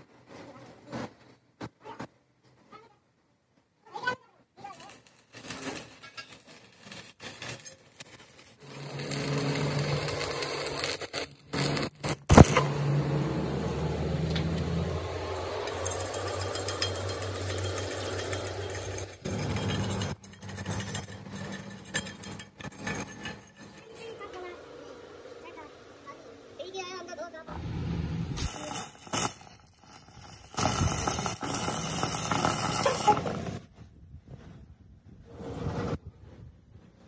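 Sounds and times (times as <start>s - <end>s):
welding arc crackling: 4.6s - 13.1s, 15.0s - 24.1s, 27.6s - 33.7s
low hum: 8.6s - 23.8s, 27.5s - 28.5s.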